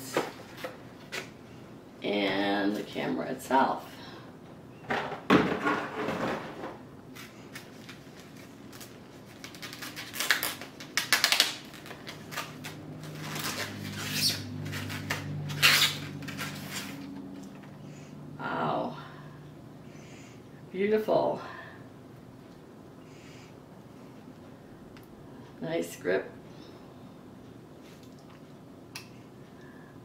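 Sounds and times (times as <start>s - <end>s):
low steady hum: 0.0s - 30.0s
packaging wrap rustling and crinkling: 7.1s - 17.2s.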